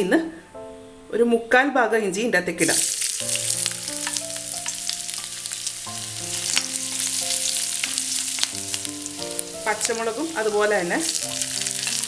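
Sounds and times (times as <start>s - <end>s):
ginger sizzling in oil: 2.6s - 12.0s
spatula scraping pan: 9.8s - 12.0s.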